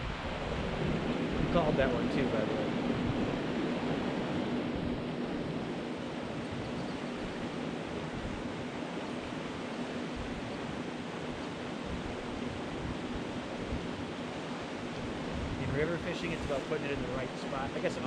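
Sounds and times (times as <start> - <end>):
creek rushing over rocks: 14.4 - 18.0.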